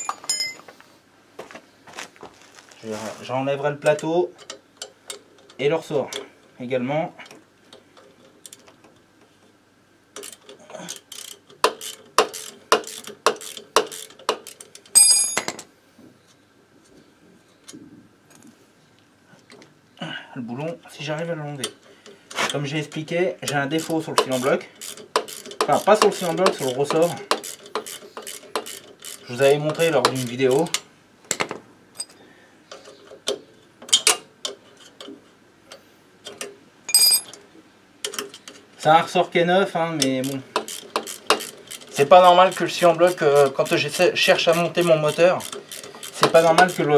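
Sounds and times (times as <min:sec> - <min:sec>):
spanner hitting the floor: 0:00.0 - 0:00.6, 0:15.0 - 0:15.6, 0:36.9 - 0:37.4
faint handling noise: 0:00.0 - 0:06.6
wrench clicking: 0:10.2 - 0:14.6, 0:23.8 - 0:30.8.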